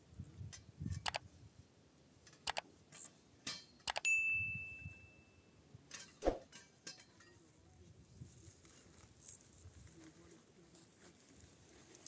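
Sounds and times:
sharp mouse clicks: 1.0 - 1.2, 2.4 - 2.6, 3.8 - 4.0
notification bell ding: 4.0 - 5.5.

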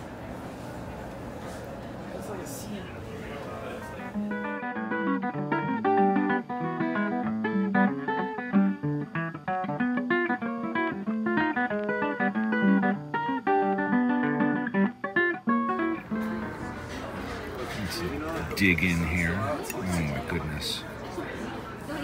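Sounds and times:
acoustic guitar picking: 3.8 - 20.8.

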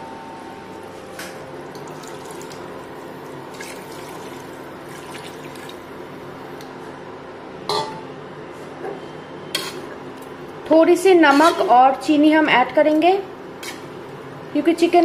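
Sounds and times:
water pouring into pot: 1.7 - 5.8.

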